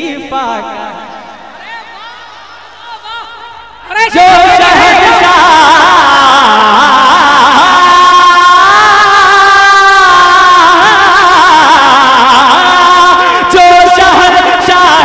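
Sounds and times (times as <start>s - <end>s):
man singing unaccompanied: 3.9s - 15.0s.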